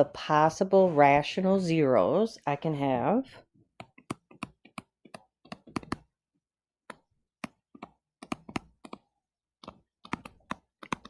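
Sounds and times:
pen tip tapping and clicking: 3.8 - 6.1, 6.9 - 9.0.

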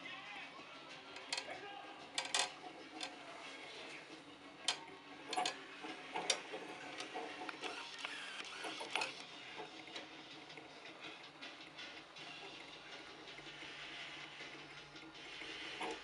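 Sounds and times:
steel ball rolling on rods: 2.1 - 16.0
motor whirring: 5.9 - 9.6.

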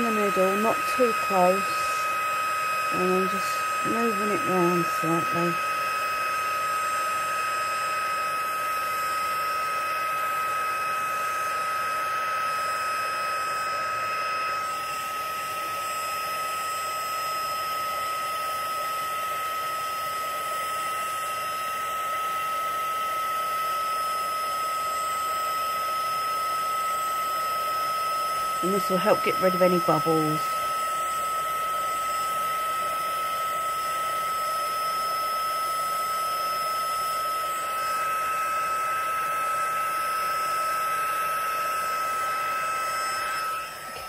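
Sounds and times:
heat gun running: 0.0 - 44.0.

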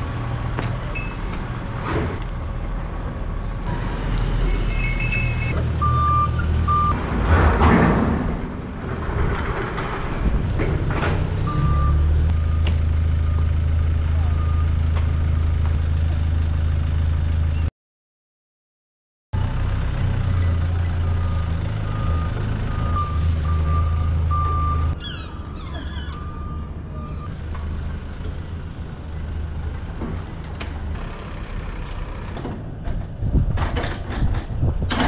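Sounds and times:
heavy vehicle engine idling: 11.7 - 17.6.

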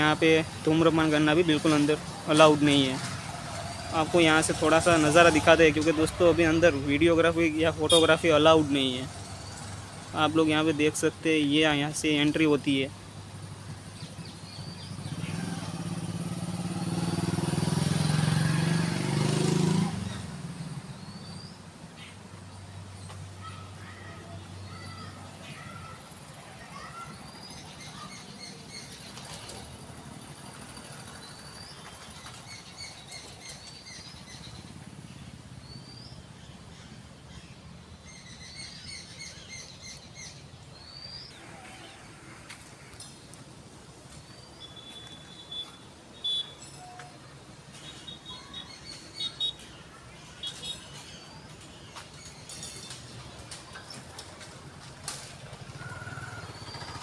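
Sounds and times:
birds chirping: 0.0 - 57.0
vehicle engine passing by: 1.5 - 7.8, 13.3 - 21.2, 27.2 - 33.4, 54.0 - 57.0.

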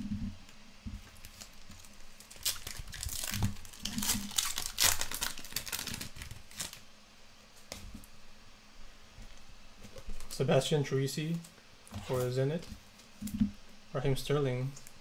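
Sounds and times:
foil tearing: 1.2 - 6.8
foil wrapper crinkling: 1.2 - 6.8.

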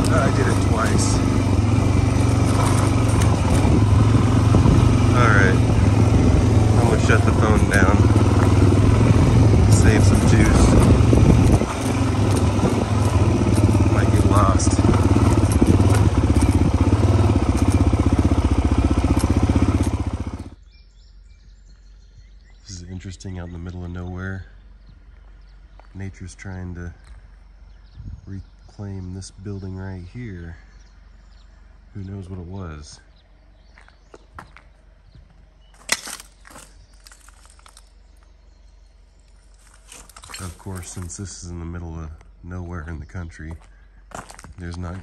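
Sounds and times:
rustling through dry brush: 0.0 - 20.5, 35.6 - 41.3
small motorcycle engine running: 0.0 - 20.6
twig snapping: 35.8 - 37.9.

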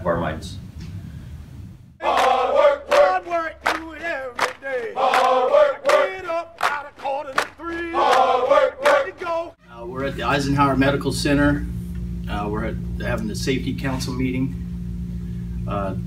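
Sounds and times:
men chanting in unison: 2.0 - 9.6
sharp rhythmic hits: 2.0 - 9.6.

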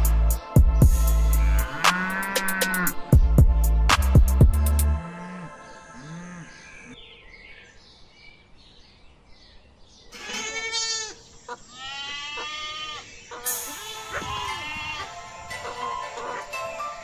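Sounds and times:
goats bleating: 10.2 - 16.4.

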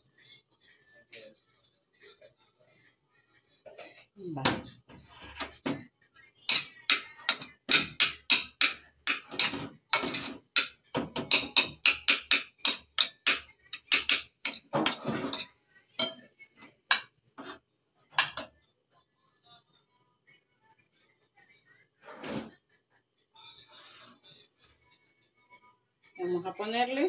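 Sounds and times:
kitchen utensils knocking: 6.5 - 16.2, 16.9 - 17.6, 18.2 - 18.5.

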